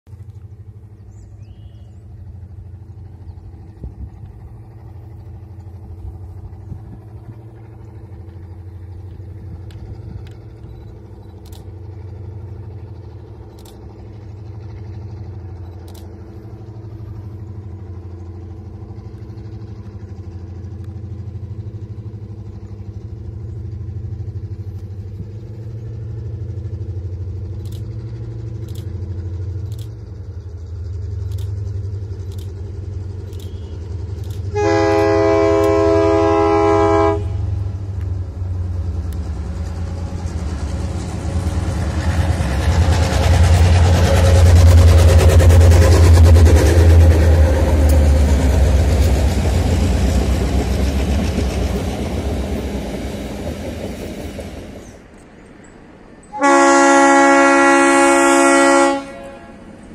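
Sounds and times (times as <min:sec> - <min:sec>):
distant diesel locomotive drone: 0:00.0 - 0:59.9
faint sharp high ticks: 0:08.3 - 0:16.8, 0:20.7 - 0:21.0, 0:27.4 - 0:30.2, 0:31.2 - 0:35.8, 0:37.6 - 0:38.2, 0:39.0 - 0:39.7, 0:47.8 - 0:48.1.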